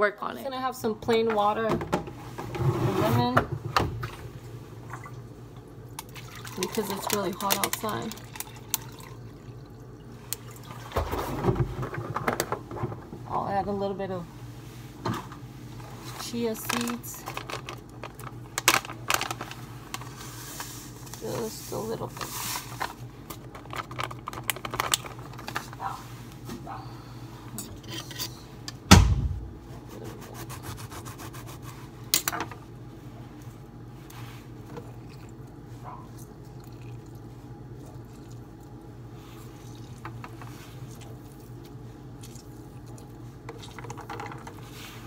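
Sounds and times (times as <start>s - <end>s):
steady low hum: 0.0s - 45.0s
clicks and rustles: 22.1s - 26.0s
loud thump: 28.9s - 29.6s.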